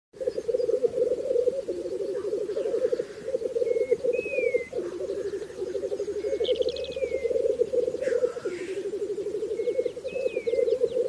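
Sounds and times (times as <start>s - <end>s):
grouse bubbling cooing chorus: 0.2s - 11.0s.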